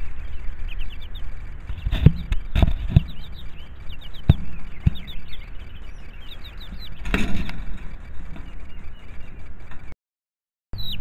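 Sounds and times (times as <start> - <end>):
chick peeping: 0.0 - 9.9, 10.8 - 11.0
dull thumps: 1.7 - 3.4.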